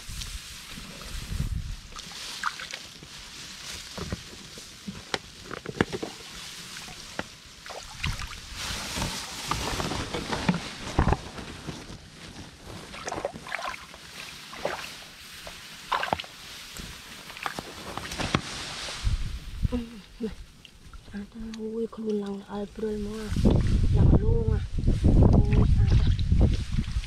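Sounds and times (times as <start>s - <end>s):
water splashing in a basket: 1.8s - 3.0s, 5.6s - 9.6s, 12.9s - 16.5s.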